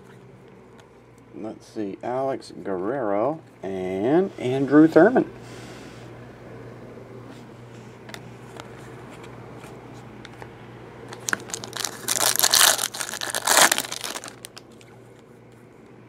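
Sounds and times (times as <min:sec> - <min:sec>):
foil wrapper tearing and crinkling: 0:11.1 - 0:14.8.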